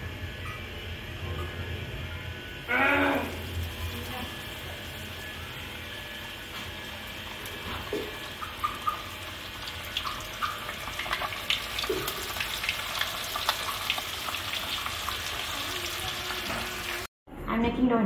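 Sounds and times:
fish deep-frying in oil: 3.0s - 17.1s.

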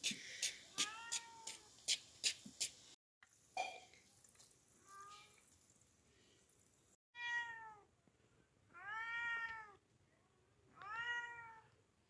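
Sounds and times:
cat meowing: 0.8s - 1.6s, 7.2s - 7.9s, 8.8s - 9.8s, 10.8s - 11.8s.

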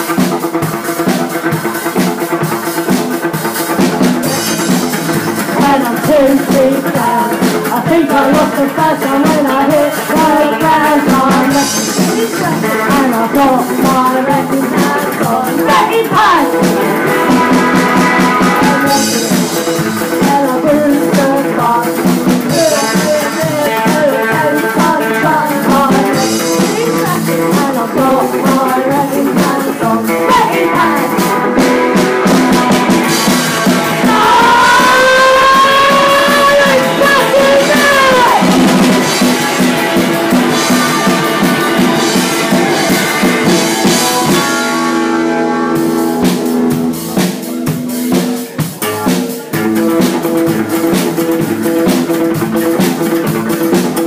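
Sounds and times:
drum kit: 0.0s - 54.0s
electric guitar: 0.0s - 54.0s
person singing: 4.2s - 48.6s.

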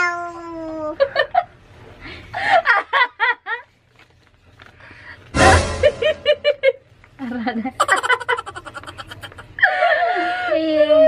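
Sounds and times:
people laughing: 5.8s - 10.6s.

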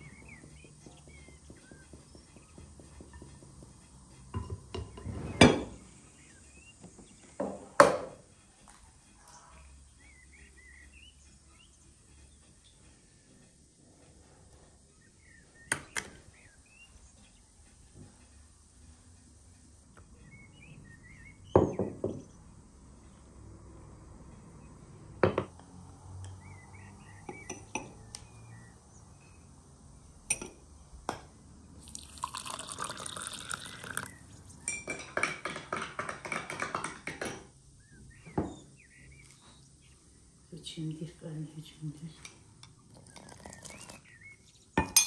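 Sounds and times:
faint bird chirps: 9.1s - 13.1s
clinking and scraping on glass bowl: 31.8s - 34.1s, 34.7s - 37.3s, 42.2s - 44.2s
liquid pouring into bowl: 31.8s - 34.2s, 42.9s - 44.0s.

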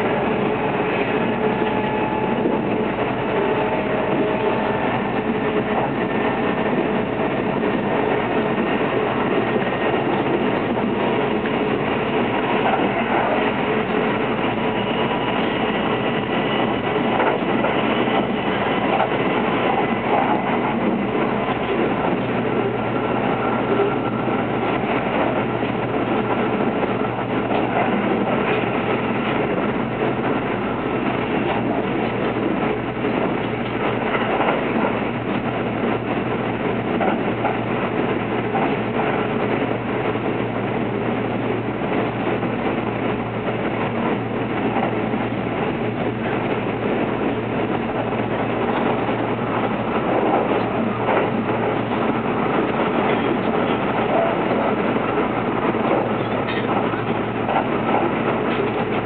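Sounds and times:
wheels rumbling on rails: 0.0s - 59.0s.

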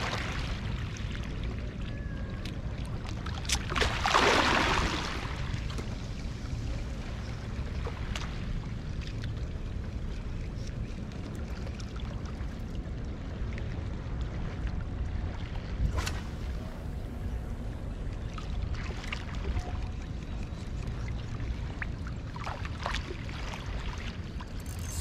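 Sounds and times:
rush of splashing: 0.0s - 6.8s
wind rumble on microphone: 0.0s - 25.0s
river water lapping against rocks: 3.0s - 5.8s.

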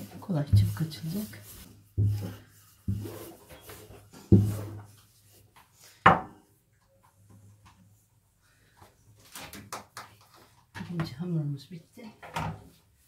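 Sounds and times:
rolling pin rolling dough: 0.0s - 5.4s.

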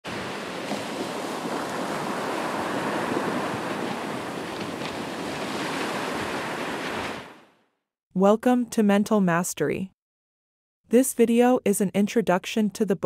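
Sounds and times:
surf washing onto beach: 0.0s - 7.5s.

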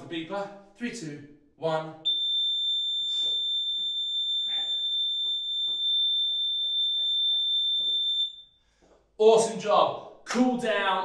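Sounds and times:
long high-pitched timer beep: 2.1s - 8.5s.

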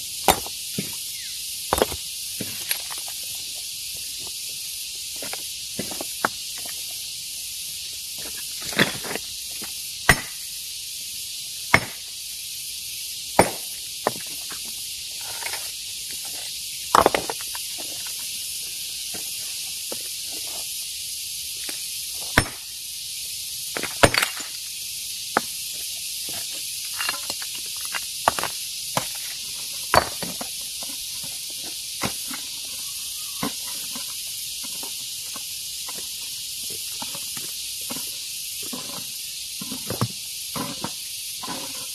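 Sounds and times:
steady high hiss: 0.0s - 41.9s
hammer striking rock: 0.2s - 0.9s, 10.1s - 10.4s, 11.7s - 12.1s, 13.4s - 14.2s, 16.9s - 17.3s, 22.4s - 22.6s, 23.8s - 24.5s, 29.9s - 30.3s.

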